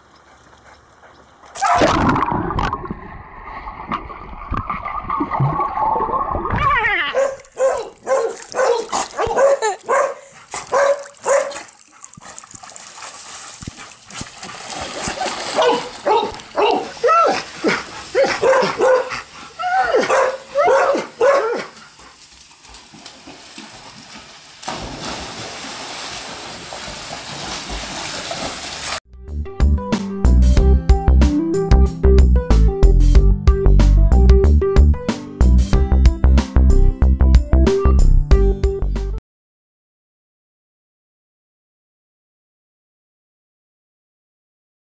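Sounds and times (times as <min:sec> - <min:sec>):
dogs barking: 0:07.1 - 0:11.7, 0:15.5 - 0:21.8.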